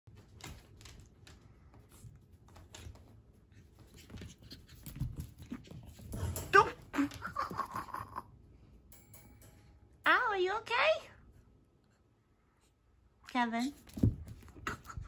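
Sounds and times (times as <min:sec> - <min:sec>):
puppy paws clicking and scuffing: 0:00.1 - 0:07.8, 0:13.7 - 0:15.0.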